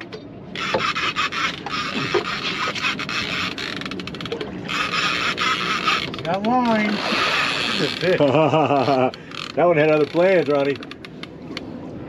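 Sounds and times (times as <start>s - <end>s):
fishing reel drag clicking: 9.3s - 11.2s.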